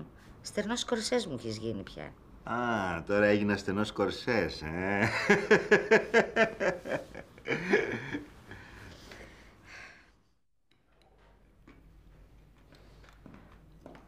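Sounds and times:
chuckling laughter: 0:05.0 - 0:08.3.

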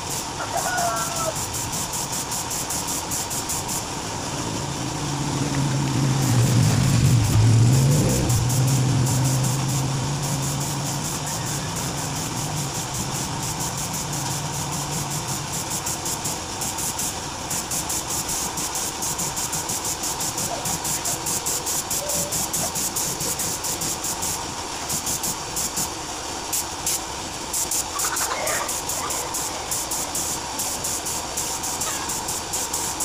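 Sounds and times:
spray gun hissing: 0:00.0 - 0:33.0
low hum: 0:03.8 - 0:15.7.

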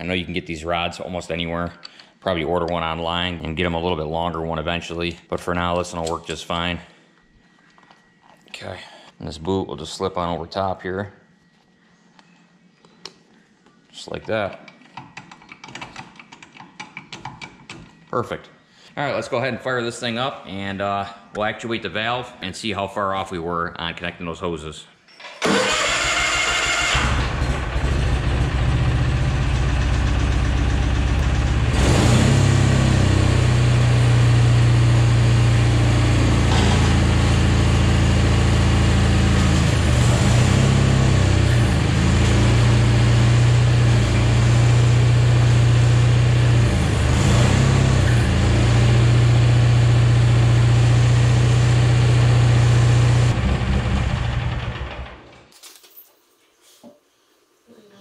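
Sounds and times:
garden tractor engine running: 0:25.4 - 0:55.2.

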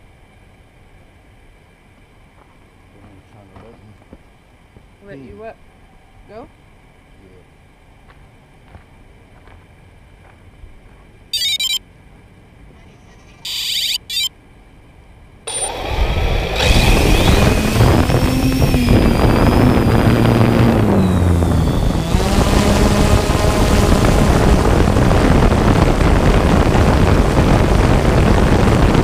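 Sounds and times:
drone propeller motors whining: 0:11.4 - 0:11.8, 0:12.8 - 0:14.3, 0:15.5 - 0:29.0
short electronic beeps: 0:11.4 - 0:11.8, 0:13.4 - 0:14.3, 0:16.6 - 0:22.7.

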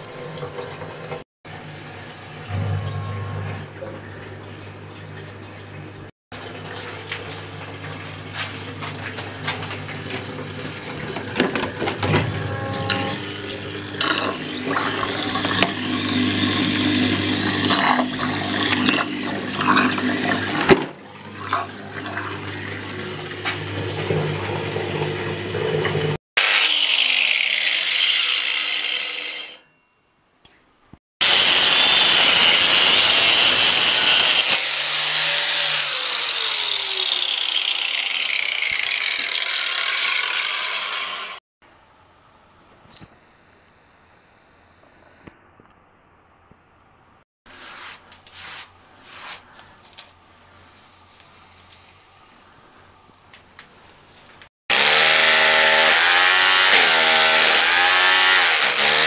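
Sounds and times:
steady low hum: 0:02.4 - 0:04.7
angle grinder spinning down: 0:26.4 - 0:29.7, 0:31.2 - 0:41.4, 0:54.7 - 0:59.0.

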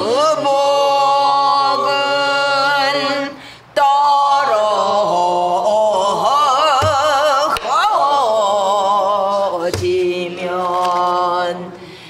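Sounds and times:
woman singing with vibrato: 0:00.0 - 0:12.0.

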